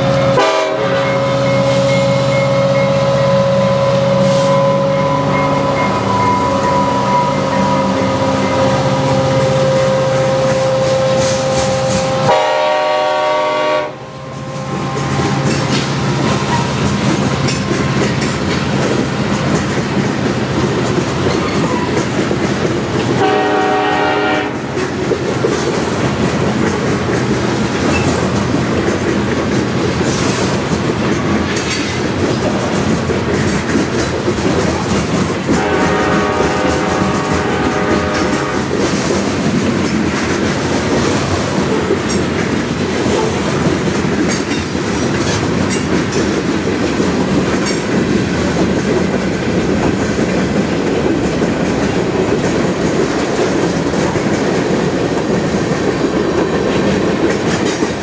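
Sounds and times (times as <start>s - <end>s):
train air horn blasts: 0.0s - 15.8s, 23.2s - 24.8s, 35.5s - 38.9s
train wheels clattering on rails: 0.0s - 58.0s
locomotive engine running: 14.1s - 23.8s.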